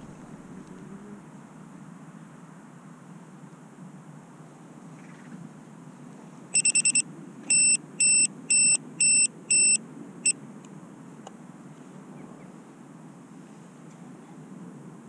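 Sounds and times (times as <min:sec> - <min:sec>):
electronic beeps: 0:06.6 - 0:09.8.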